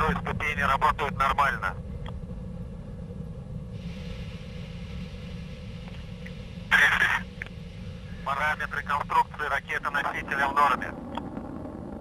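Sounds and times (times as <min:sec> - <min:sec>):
radio low rumble and hiss: 0:00.0 - 0:12.0
burst of radio static: 0:06.7 - 0:07.3, 0:08.2 - 0:11.0.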